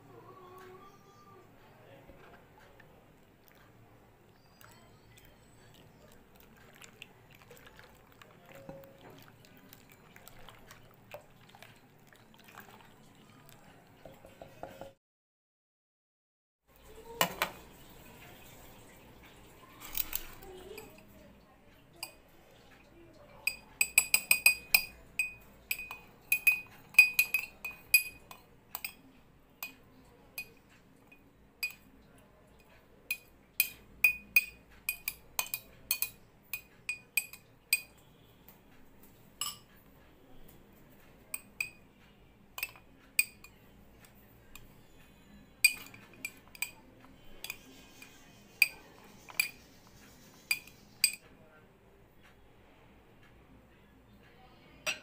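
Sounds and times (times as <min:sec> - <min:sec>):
glass tumbler clinking: 0:23.5 - 0:29.0, 0:33.1 - 0:38.0, 0:39.4 - 0:39.7, 0:42.6 - 0:43.6, 0:45.6 - 0:46.8.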